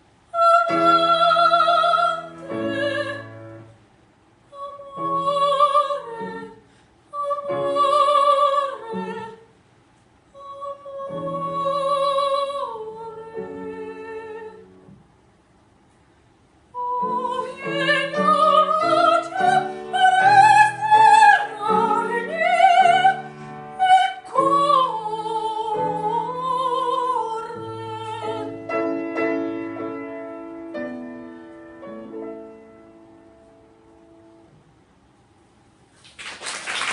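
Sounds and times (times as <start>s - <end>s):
soprano singing with vibrato: 0.3s - 3.6s, 4.5s - 9.5s, 10.3s - 14.7s, 16.8s - 28.7s
piano accompaniment: 16.8s - 34.7s.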